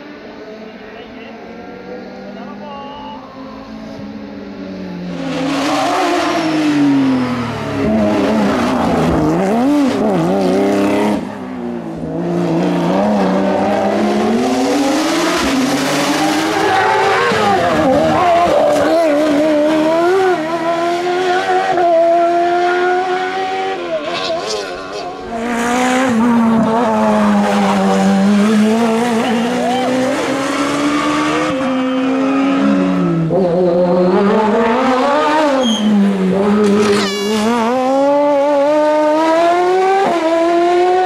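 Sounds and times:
race car engine revving: 3.3s - 41.0s.

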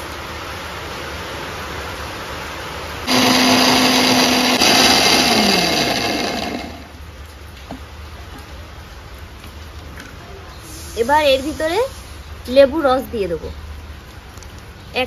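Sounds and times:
mixer grinder humming: 3.1s - 7.0s.

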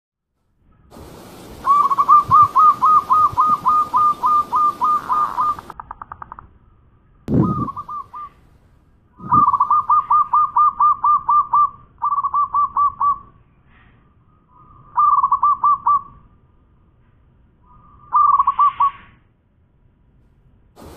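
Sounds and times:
dove cooing: 1.6s - 5.8s, 7.3s - 8.4s, 9.2s - 13.2s, 15.0s - 16.1s.

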